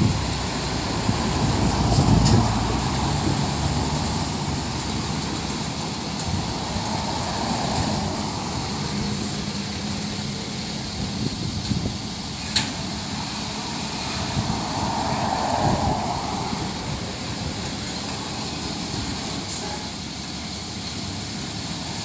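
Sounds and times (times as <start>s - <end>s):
low engine hum: 0.0s - 22.0s
car passing by: 6.4s - 9.4s, 13.7s - 18.4s.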